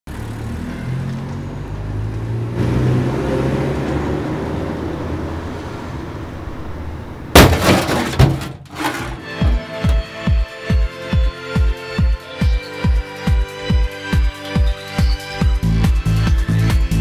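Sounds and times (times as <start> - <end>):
car engine drone: 0.1 - 8.5
tyres and wind rushing: 0.2 - 10.2
loud crash: 7.3 - 9.2.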